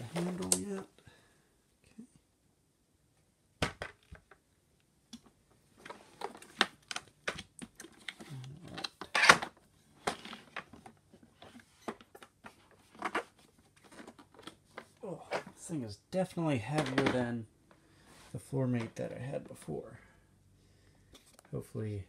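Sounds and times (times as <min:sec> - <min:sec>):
plastic parts clicking and knocking: 0:03.6 - 0:04.5, 0:05.1 - 0:15.5, 0:16.7 - 0:17.8.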